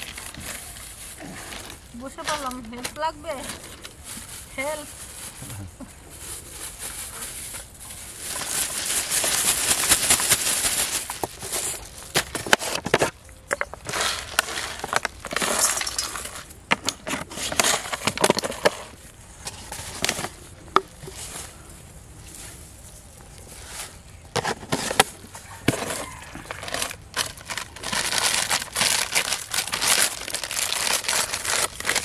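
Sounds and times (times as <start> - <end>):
plastic bag crinkling: 0.0 - 32.0.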